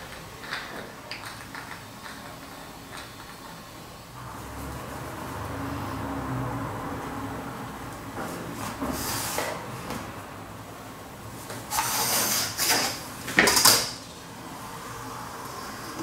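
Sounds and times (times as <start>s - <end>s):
ruler and paper scraping rustles: 11.7s - 13.0s.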